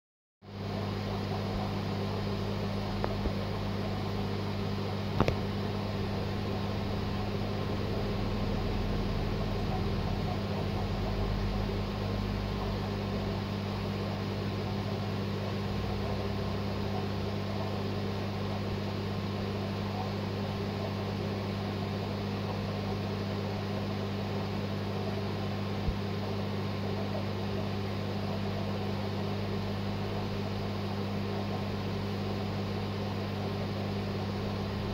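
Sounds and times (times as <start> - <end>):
aquarium equipment humming: 0.4 - 34.9.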